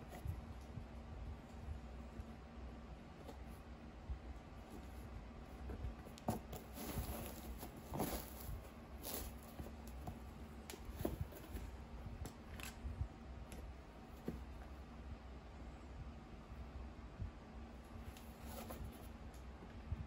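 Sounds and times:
sneakers rustling in hands: 0:04.6 - 0:12.4, 0:18.1 - 0:19.1.

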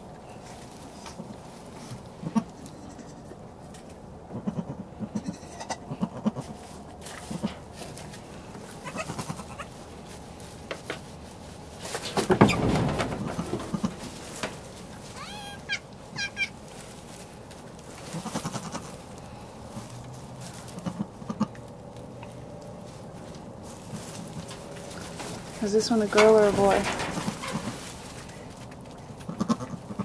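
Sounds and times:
goat kid bleating: 0:02.2 - 0:03.4, 0:04.3 - 0:06.6, 0:08.7 - 0:09.8, 0:15.1 - 0:16.6, 0:18.0 - 0:19.0, 0:20.7 - 0:21.6, 0:29.2 - 0:30.0.

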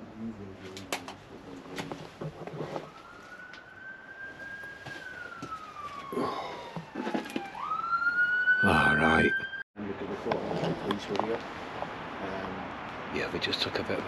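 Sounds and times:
police siren wailing: 0:02.7 - 0:09.6.

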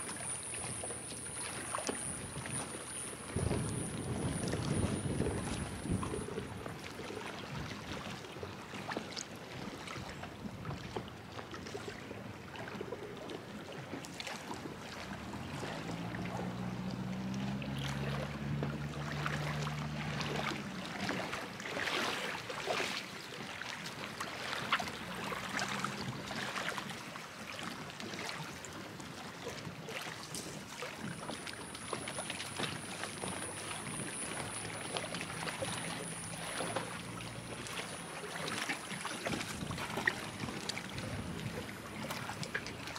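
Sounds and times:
water lapping and splashing: 0:00.0 - 0:42.9
engine droning: 0:14.6 - 0:21.8, 0:24.9 - 0:26.4, 0:31.2 - 0:42.9.

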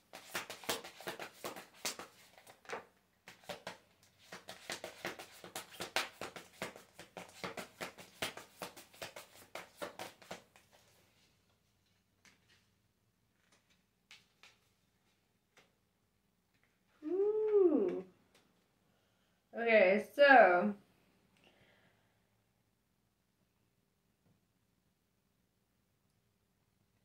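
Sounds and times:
cards being shuffled: 0:00.1 - 0:12.7, 0:13.3 - 0:15.7.

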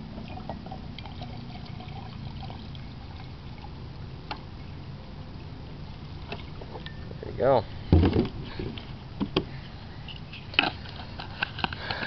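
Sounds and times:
liquid trickling into jar: 0:00.0 - 0:04.0, 0:05.8 - 0:07.3.

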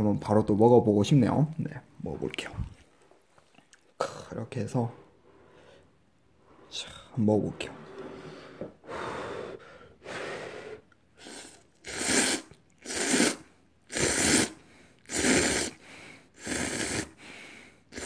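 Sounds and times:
noodles slurping: 0:11.2 - 0:17.2.

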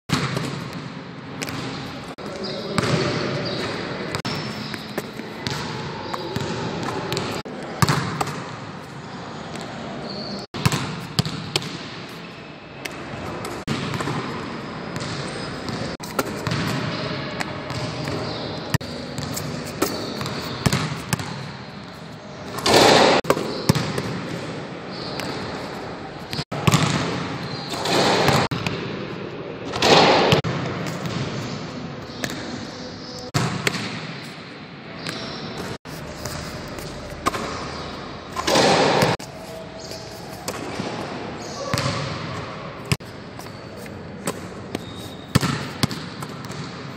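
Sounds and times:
basketball bouncing on court: 0:00.1 - 0:08.6, 0:10.6 - 0:12.0, 0:12.8 - 0:21.6, 0:22.6 - 0:25.6, 0:26.3 - 0:28.9, 0:33.3 - 0:34.3, 0:35.0 - 0:39.2, 0:39.9 - 0:43.5, 0:44.2 - 0:46.9.

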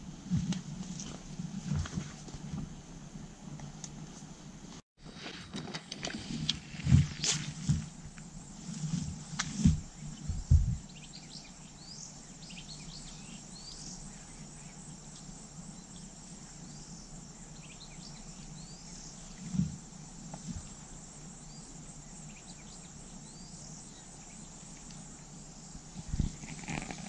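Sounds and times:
insects droning: 0:00.0 - 0:27.0.

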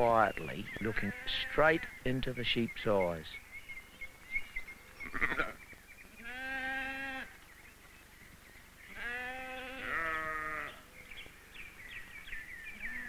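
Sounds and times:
sheep bleating: 0:00.8 - 0:01.9, 0:05.0 - 0:05.6, 0:06.2 - 0:07.3, 0:08.9 - 0:10.8.

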